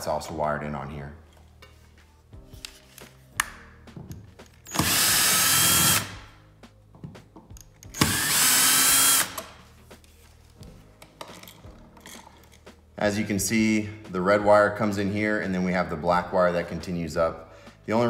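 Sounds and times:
cordless drill whining: 4.7s - 6.1s, 8.0s - 9.5s.

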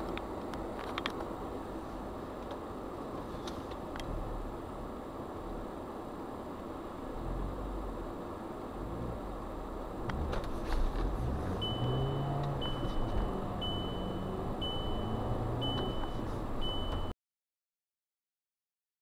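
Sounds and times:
car cabin driving noise: 0.0s - 17.1s
high electronic warning beep: 11.5s - 17.1s.

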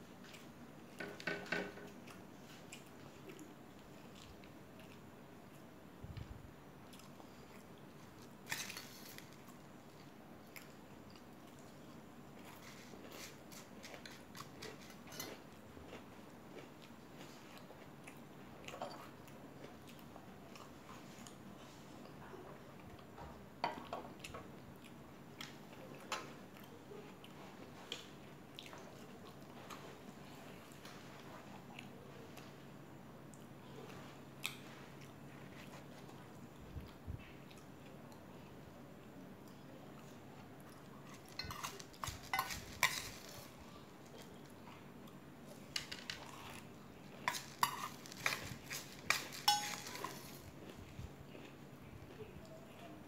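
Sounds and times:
soft chewing: 0.0s - 53.0s
spoon clinking against metal bowl: 41.4s - 41.7s, 42.3s - 43.0s, 49.4s - 50.2s
teacup clinking on saucer: 49.5s - 50.1s.

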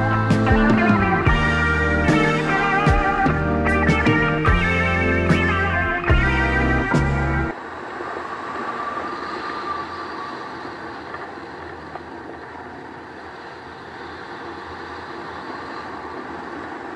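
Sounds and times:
guitar music: 0.0s - 7.5s.

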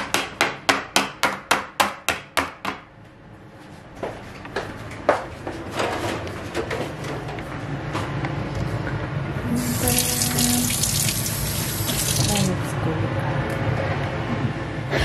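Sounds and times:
tap water running into sink: 9.6s - 12.6s.

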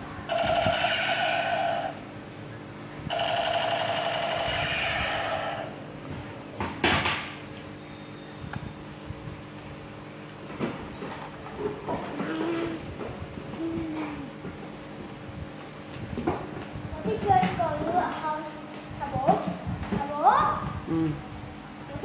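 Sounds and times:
toy gun electronic firing sound: 0.3s - 2.0s, 3.1s - 5.7s.

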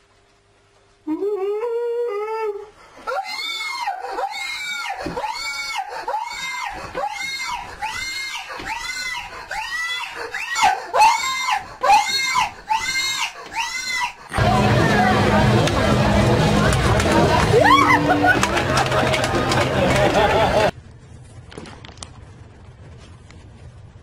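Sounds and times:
person screaming in terror: 2.6s - 14.5s, 17.5s - 18.1s.

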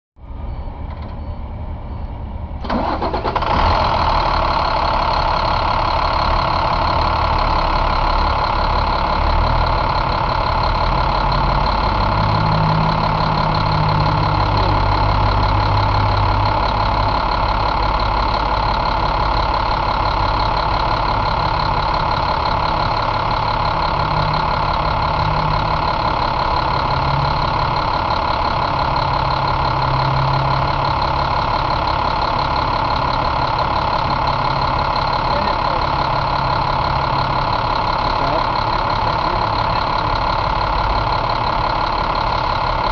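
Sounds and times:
diesel engine starting and idling: 0.2s - 42.9s.

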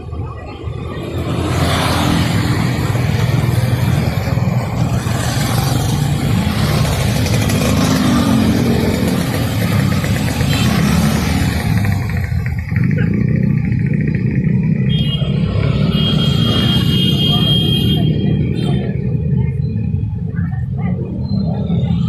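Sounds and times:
cars passing: 0.0s - 22.0s
motorcycles passing: 0.0s - 22.0s.

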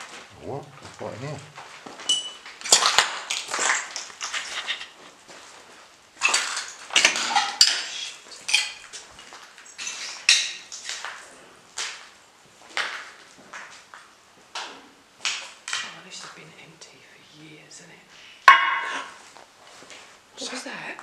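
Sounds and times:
footsteps crunching over debris: 0.0s - 14.6s, 18.7s - 20.6s.

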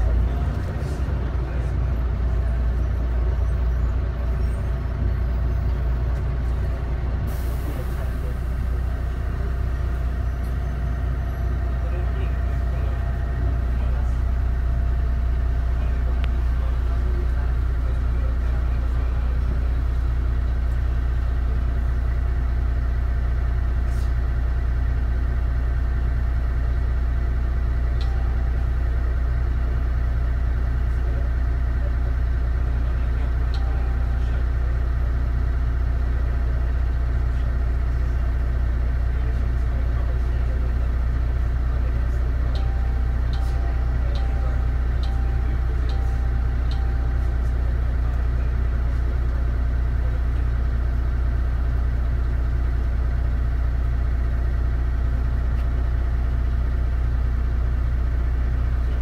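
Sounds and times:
diesel bus engine idling: 0.0s - 59.0s.

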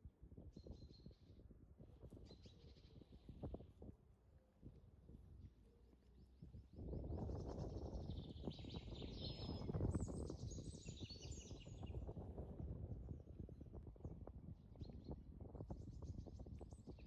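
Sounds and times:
small birds chirping: 6.2s - 12.1s.

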